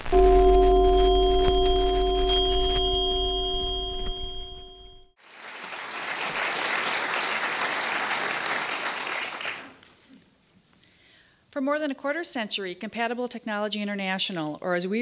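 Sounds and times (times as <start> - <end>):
bell-like chime tones: 0.1 - 5.2
audience applauding: 5.2 - 9.8.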